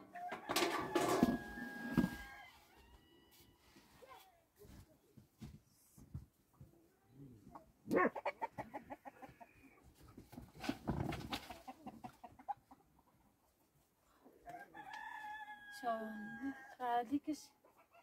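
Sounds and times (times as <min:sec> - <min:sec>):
chickens clucking: 0:07.4 - 0:14.4.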